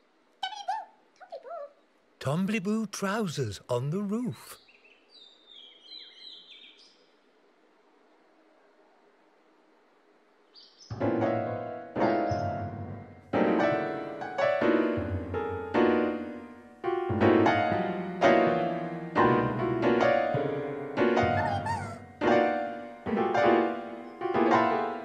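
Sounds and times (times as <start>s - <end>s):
slow sad piano chords: 10.9s - 25.0s.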